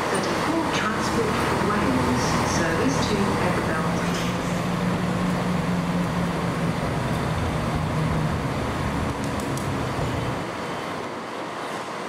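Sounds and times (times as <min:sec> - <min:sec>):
diesel train engine humming: 0:00.0 - 0:12.0
rumbling noise: 0:01.1 - 0:10.5.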